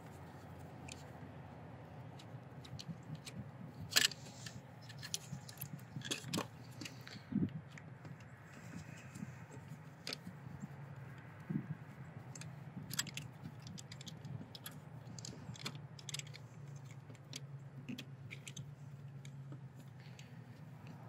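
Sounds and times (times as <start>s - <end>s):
screwdriver clicking and scraping: 2.1s - 11.3s, 12.2s - 21.0s.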